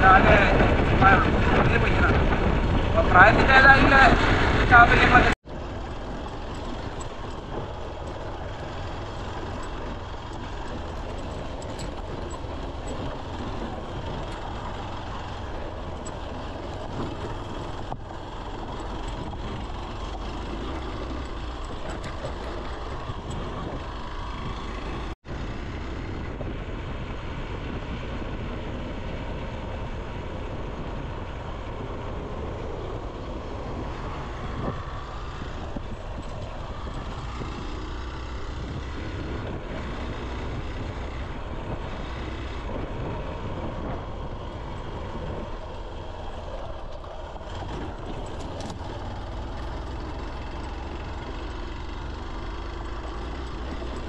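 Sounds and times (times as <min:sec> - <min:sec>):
motorcycle engine: 0:00.0 - 0:54.0
tyres on gravel: 0:00.0 - 0:54.0
wind noise: 0:00.0 - 0:54.0.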